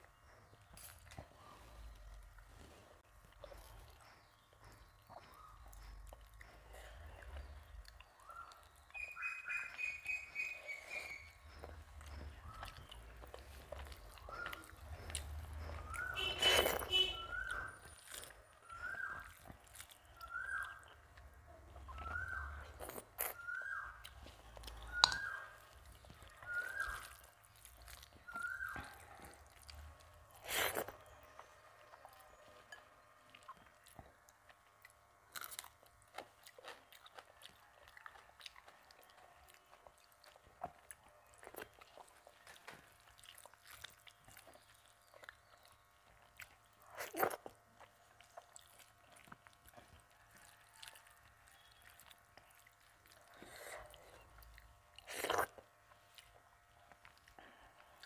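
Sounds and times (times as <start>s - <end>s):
close chewing: 0.0s - 58.0s
wet squelches: 1.3s - 32.4s.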